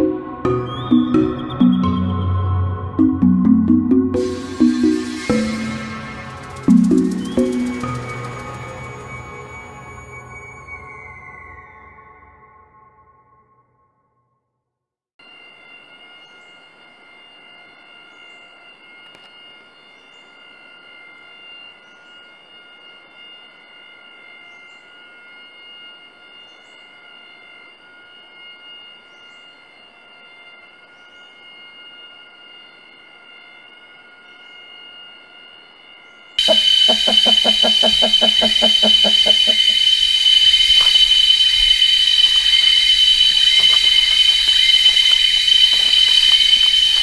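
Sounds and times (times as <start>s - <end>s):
cicadas droning: 4.2s - 11.9s, 15.2s - 47.0s
insect chorus whine: 4.2s - 12.0s, 15.2s - 47.0s
short rising insect chirp: 4.2s - 12.0s, 20.4s - 47.0s.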